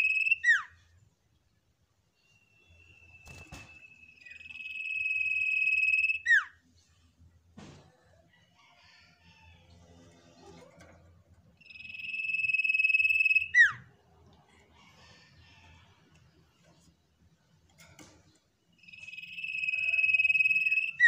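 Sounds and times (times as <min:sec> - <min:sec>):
bird whistling call: 0:00.0 - 0:00.7, 0:04.1 - 0:06.5, 0:11.7 - 0:13.8.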